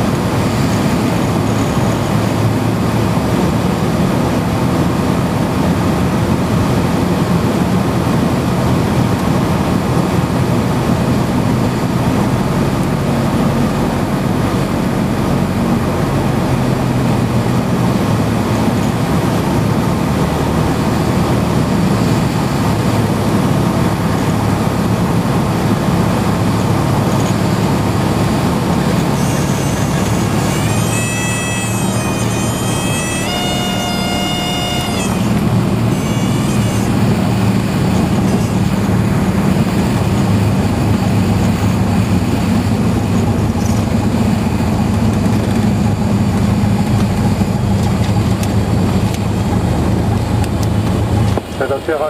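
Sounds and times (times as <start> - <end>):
propeller plane engine drone: 0.0 - 52.0
high reedy warning tone: 25.4 - 44.6.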